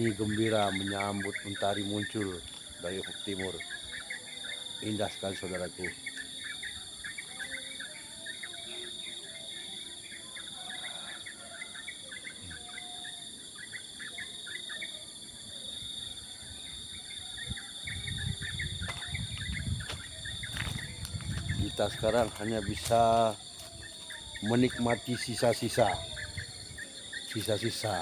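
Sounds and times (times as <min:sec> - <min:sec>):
insects droning: 0:00.0 - 0:28.0
songbirds chirping: 0:00.0 - 0:28.0
low rumble on microphone: 0:17.5 - 0:22.0.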